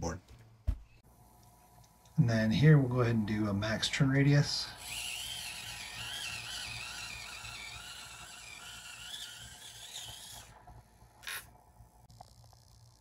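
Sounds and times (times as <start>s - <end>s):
electric motor whine: 4.1s - 11.4s.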